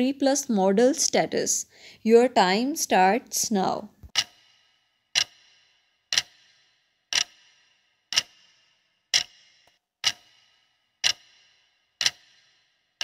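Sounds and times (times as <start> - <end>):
clock ticking: 4.1 - 13.0.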